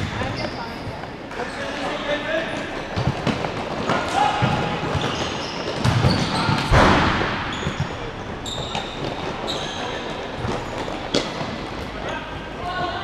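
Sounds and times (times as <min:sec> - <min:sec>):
shoes squeaking on court: 0:00.0 - 0:12.6
ball struck hard: 0:05.8 - 0:07.8.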